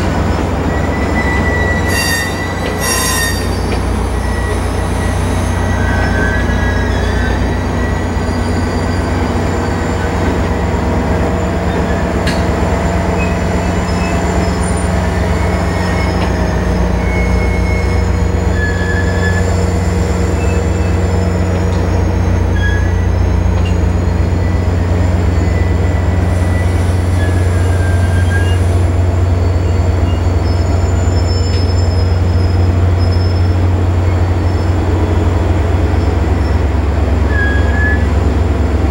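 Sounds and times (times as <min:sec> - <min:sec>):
short high squeaks: 0:00.8 - 0:10.2, 0:37.3 - 0:38.2.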